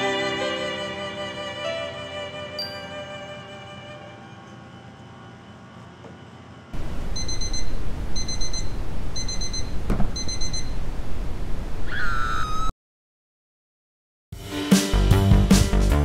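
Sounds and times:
digital alarm clock beeping: 0:07.1 - 0:10.8
knock: 0:09.9 - 0:10.2.

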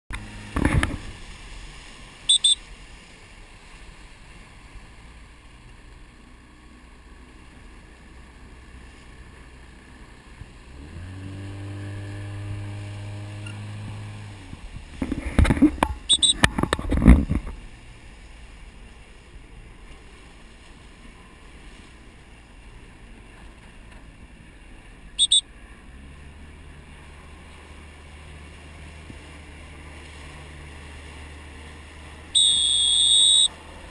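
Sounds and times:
low engine-like drone: 0:00.1 - 0:33.9
wind and water noise: 0:00.1 - 0:33.9
whistle blasts: 0:02.3 - 0:02.6, 0:16.1 - 0:16.5, 0:25.2 - 0:25.5, 0:32.3 - 0:33.6.

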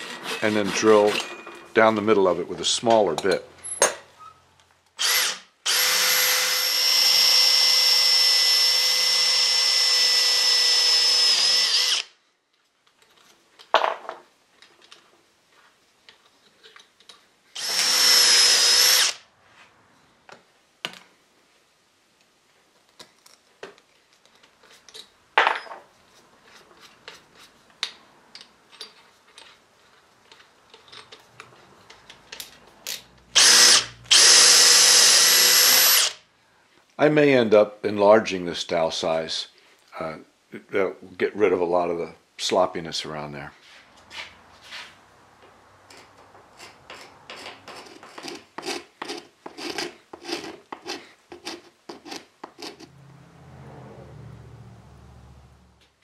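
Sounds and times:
cordless drill running: 0:05.0 - 0:12.1, 0:17.6 - 0:19.2, 0:33.4 - 0:36.2.

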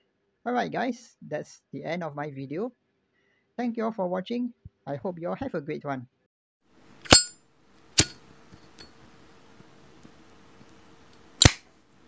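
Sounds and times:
lighter lid clicking: 0:11.4 - 0:11.6.

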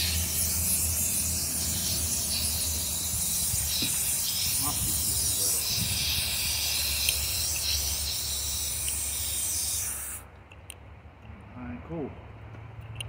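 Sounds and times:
garden hose spraying water: 0:00.0 - 0:10.3.

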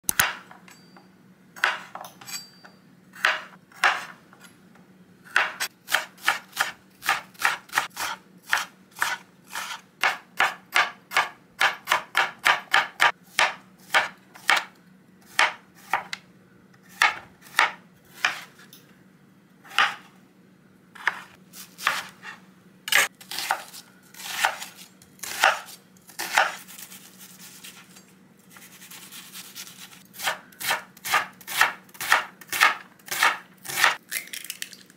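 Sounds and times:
knife chopping on cutting board: 0:01.6 - 0:02.0, 0:03.2 - 0:04.2, 0:05.3 - 0:14.7, 0:15.3 - 0:16.2, 0:16.9 - 0:18.6, 0:19.7 - 0:20.1, 0:21.0 - 0:27.8, 0:30.2 - 0:34.0.

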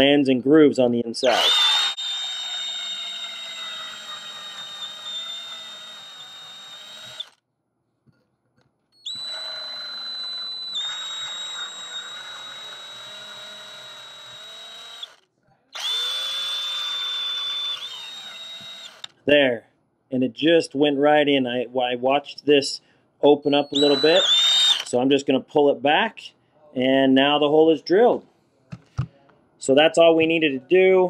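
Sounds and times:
power drill whining into metal: 0:01.2 - 0:07.4, 0:09.0 - 0:15.2, 0:15.8 - 0:19.2, 0:23.6 - 0:24.9.

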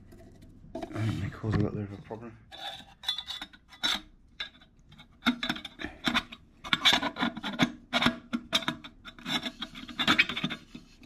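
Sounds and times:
metal burner scraping in pot: 0:05.4 - 0:11.0.

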